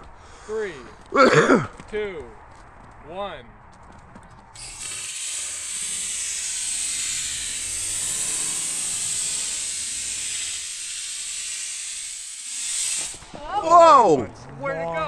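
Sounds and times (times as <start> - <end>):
rocket motor hissing: 4.6 - 14.0.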